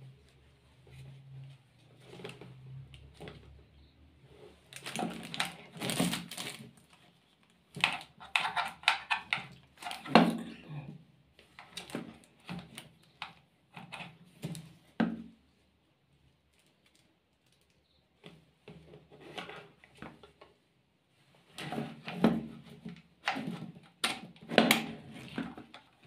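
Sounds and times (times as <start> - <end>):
plastic clicks and knocks: 7.7 - 10.4.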